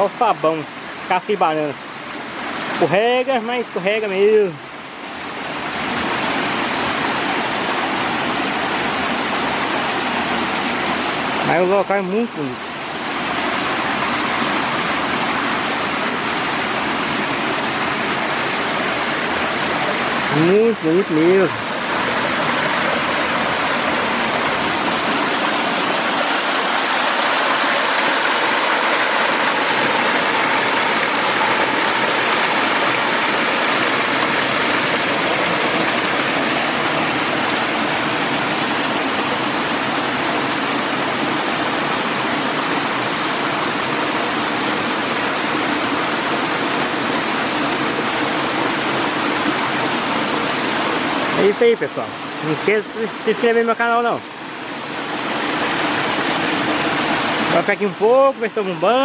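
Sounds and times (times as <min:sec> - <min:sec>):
stream water rushing over boulders: 0:00.0 - 0:59.0.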